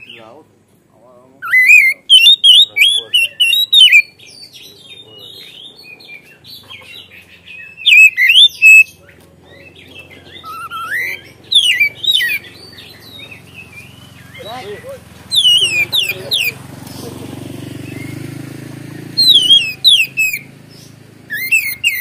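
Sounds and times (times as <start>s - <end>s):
bird twittering: 0.0s - 0.4s, 1.2s - 22.0s
bird singing whistled phrases: 1.4s - 6.3s, 7.4s - 16.6s, 19.1s - 20.5s, 21.3s - 22.0s.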